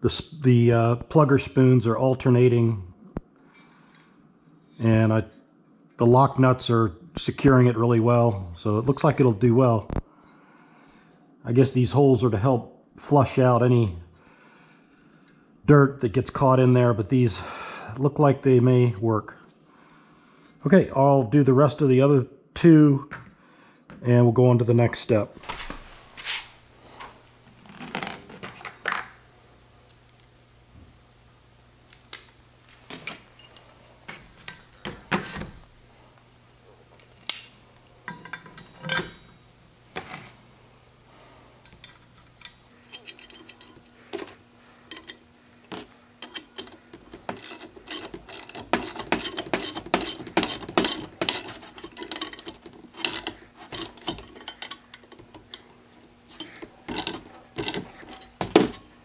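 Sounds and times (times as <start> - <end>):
bolts and nuts clinking on steel: 32.0 - 35.1, 36.3 - 39.4, 41.6 - 55.7, 56.3 - 58.9
wrench tightening nuts: 46.2 - 55.7, 56.3 - 58.8.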